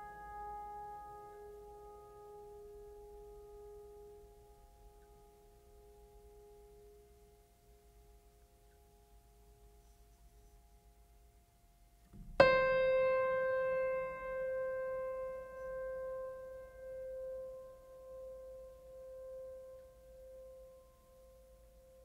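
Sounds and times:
piano note ringing: 0:12.2 - 0:21.2.

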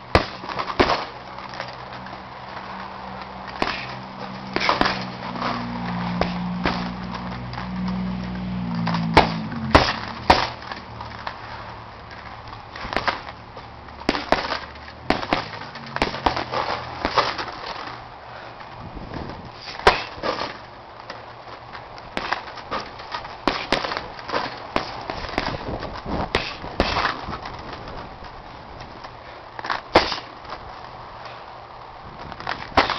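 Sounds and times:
boxing gloves hitting heavy bag: 0:00.1 - 0:01.2, 0:03.5 - 0:07.2, 0:08.8 - 0:10.7, 0:12.7 - 0:13.3, 0:14.0 - 0:17.8, 0:19.6 - 0:20.6, 0:22.1 - 0:27.5, 0:29.9 - 0:30.3, 0:32.4 - 0:32.9.

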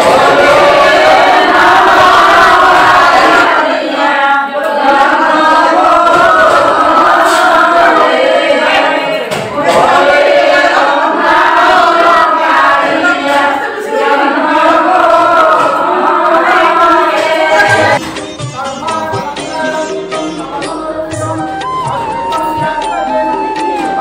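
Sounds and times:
group singing a hymn: 0:00.0 - 0:18.1
devotional music with tabla: 0:16.6 - 0:24.0.

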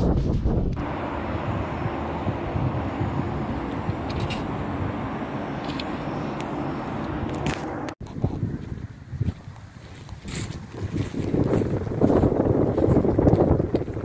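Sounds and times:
outdoor hiss-like wash: 0:00.8 - 0:07.9.

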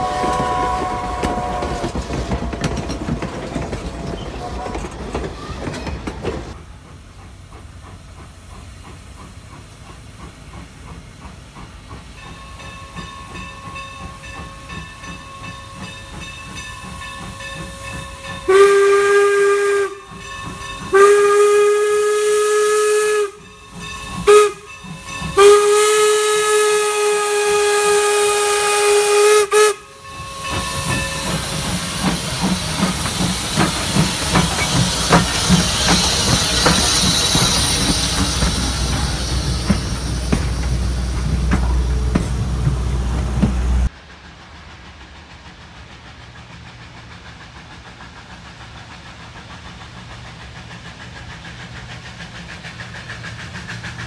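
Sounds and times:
steam locomotive whistle: 0:00.0 - 0:02.0, 0:17.4 - 0:43.9
train rumble: 0:00.0 - 0:54.0
hiss of steam: 0:06.5 - 0:54.0.

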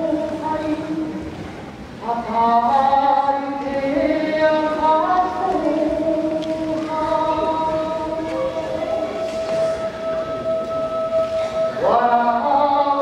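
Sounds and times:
voices chanting long notes: 0:03.3 - 0:13.0.

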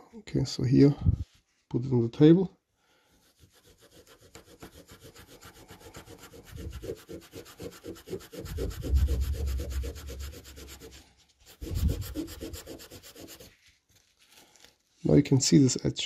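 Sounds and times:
polishing pad scrubbing: 0:03.2 - 0:13.7.

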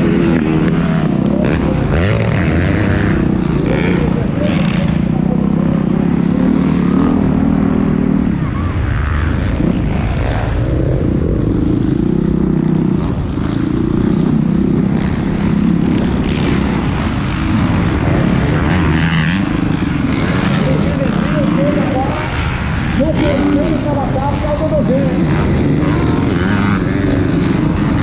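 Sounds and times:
motocross bike engine revving: 0:00.0 - 0:28.0.

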